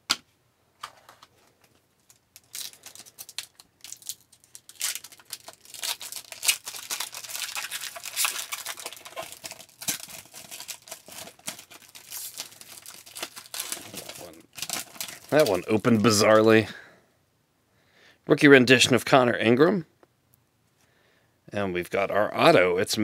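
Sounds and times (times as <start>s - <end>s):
foil wrapper crinkling and tearing: 2.0s - 16.5s.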